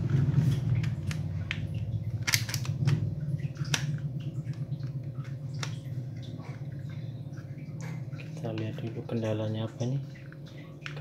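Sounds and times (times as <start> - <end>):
steady low hum: 0.0 - 11.0
plastic pistol slide clicks: 2.2 - 2.8.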